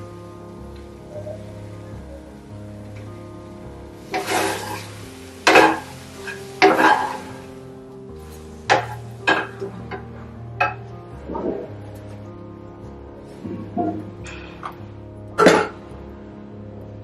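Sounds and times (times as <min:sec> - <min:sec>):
food sizzling in frying pan: 0:00.0 - 0:09.8.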